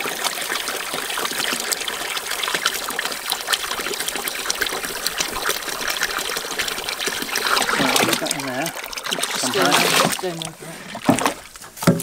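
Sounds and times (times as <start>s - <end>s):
water pouring from hose: 0.0s - 12.0s.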